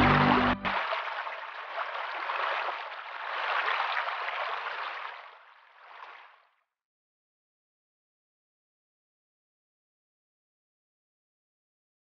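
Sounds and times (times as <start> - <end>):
stream running over rocks: 0.0 - 6.4.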